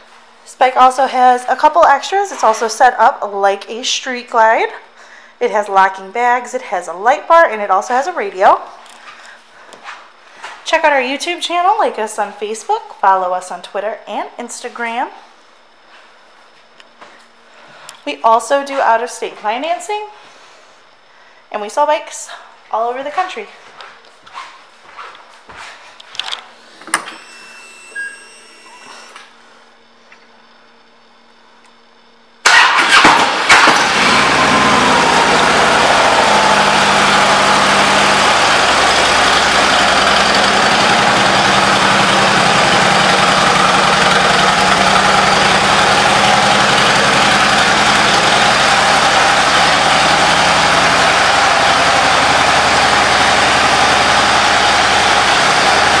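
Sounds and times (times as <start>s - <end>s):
brief whine: 26.8s - 29.4s
motorcycle engine starting and idling: 32.4s - 56.0s.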